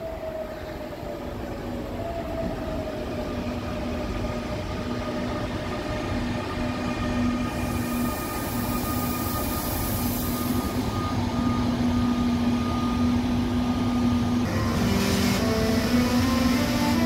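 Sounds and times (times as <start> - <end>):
train rumble: 0.0 - 17.0
locomotive electric hum: 10.3 - 17.0.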